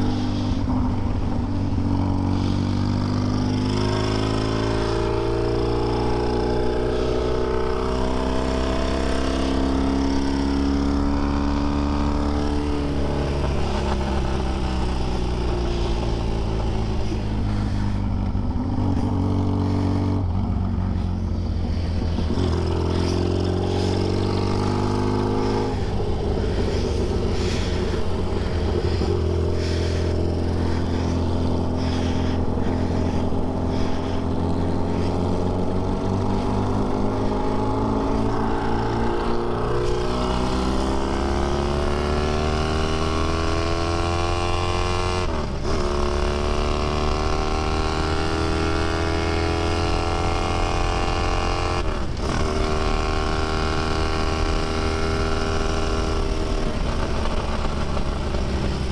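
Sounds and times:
racing engine pulling hard: 0:00.0 - 0:58.9.

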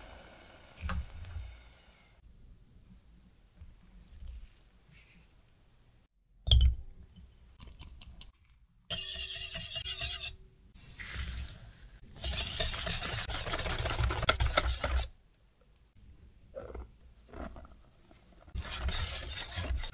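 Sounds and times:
whisk clinking against glass bowl: 0:08.9 - 0:10.3.

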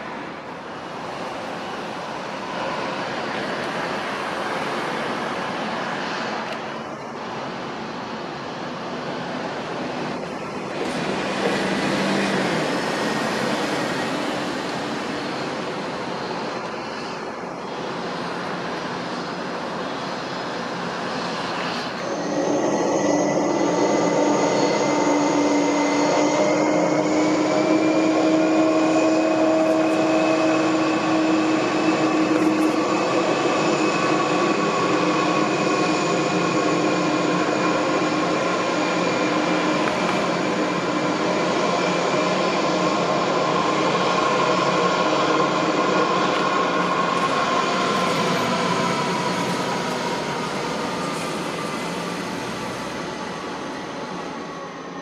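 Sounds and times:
jet engines rumbling: 0:00.0 - 0:55.0
high whining tones: 0:21.0 - 0:54.8.

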